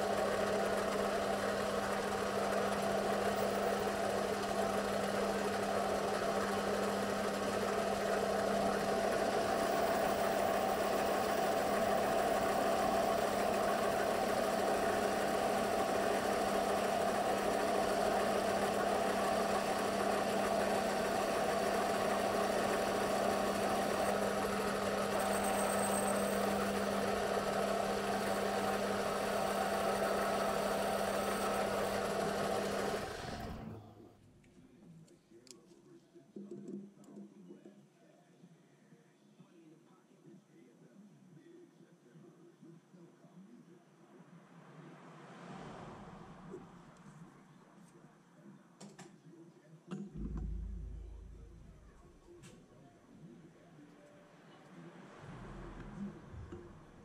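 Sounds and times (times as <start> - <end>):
lathe tool cutting metal: 0.0 - 33.8
metal lathe motor hum: 0.0 - 33.8.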